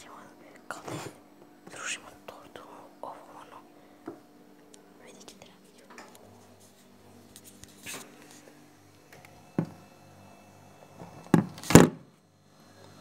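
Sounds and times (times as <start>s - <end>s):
phone rubbing against clothing: 6.4s - 8.5s.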